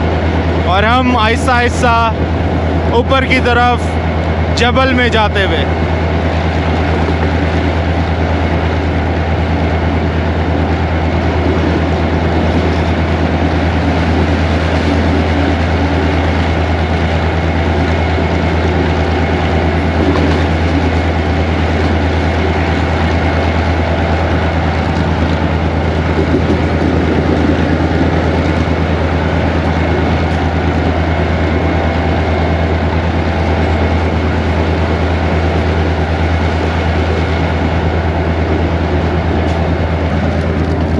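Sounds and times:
locomotive engine drone: 0.0 - 40.9
rail noise: 0.0 - 40.9.

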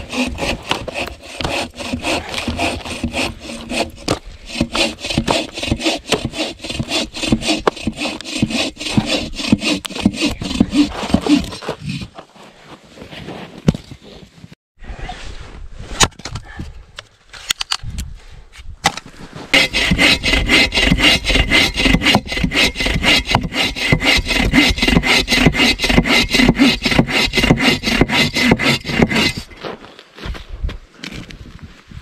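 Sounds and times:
bow saw cutting through log: 0.0 - 12.2, 19.5 - 29.6.

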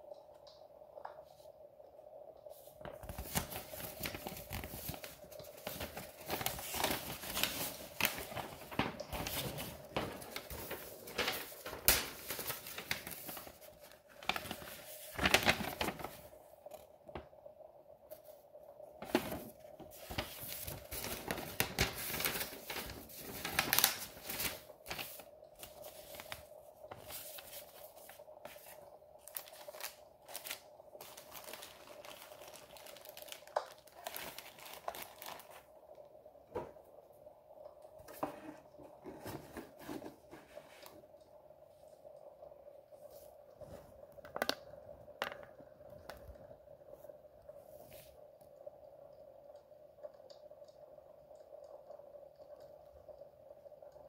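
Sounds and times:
faint steady hum: 0.0 - 54.0
paper rustling and crinkling: 2.6 - 17.2, 19.0 - 35.7.

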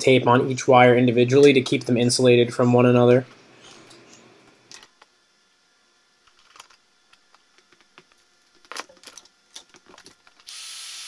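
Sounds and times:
heat gun fan hissing: 10.5 - 11.0.

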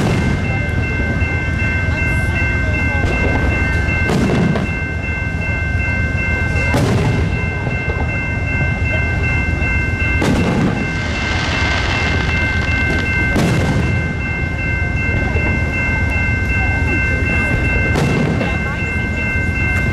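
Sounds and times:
train cars rolling past: 0.0 - 19.9
firework bangs: 10.2 - 14.1.

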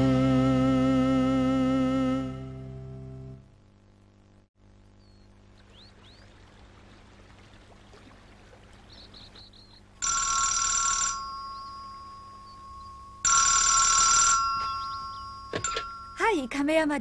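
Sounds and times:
faint high chirps: 4.8 - 6.4, 11.3 - 13.3, 14.3 - 16.2
electronic telephone ringing: 10.0 - 16.5.

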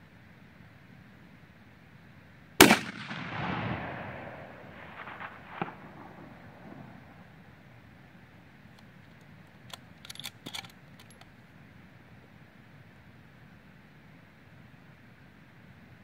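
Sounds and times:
rifle shot with echo: 2.6 - 7.4
small clicks: 8.7 - 11.3.

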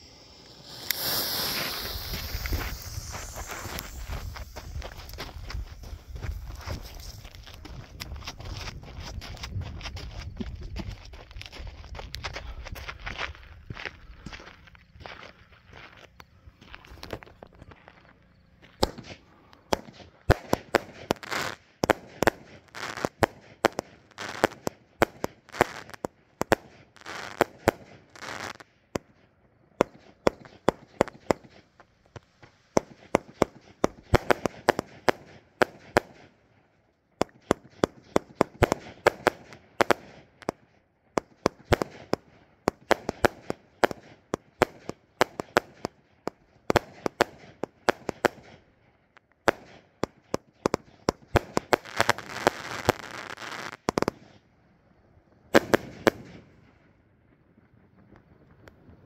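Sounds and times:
fireworks hissing: 0.0 - 9.4, 18.8 - 26.0, 26.8 - 28.7, 51.4 - 54.3
fireworks banging: 0.0 - 11.5, 18.7 - 29.2, 29.8 - 36.3, 37.2 - 40.6, 41.2 - 48.6, 49.4 - 54.4, 55.4 - 59.0.

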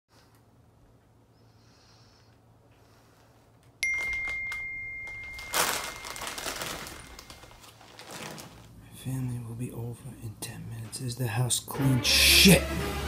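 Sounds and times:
text message alert ding: 3.8 - 7.4
chip bag crinkling: 4.0 - 8.8.

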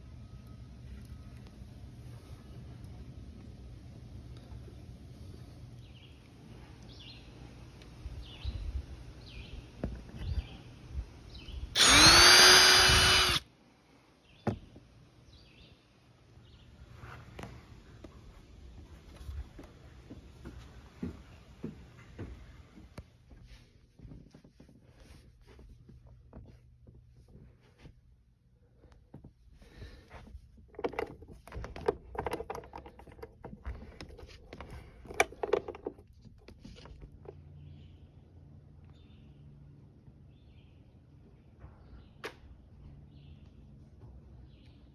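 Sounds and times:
cordless drill whining: 11.8 - 13.4
window crank clicking and rattling: 30.6 - 37.2.

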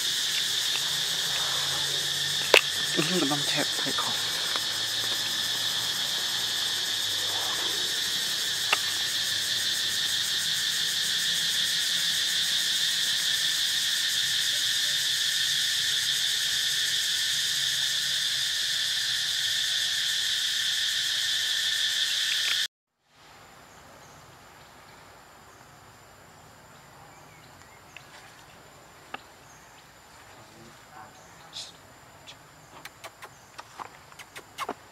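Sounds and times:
chorus of insects buzzing: 0.0 - 22.6
thin high insect tone: 0.0 - 22.7, 23.4 - 34.8.

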